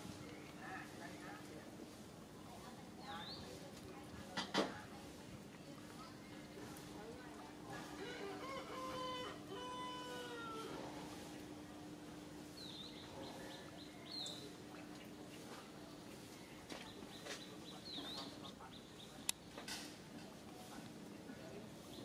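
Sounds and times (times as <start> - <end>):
birds chirping: 12.5 - 19.6.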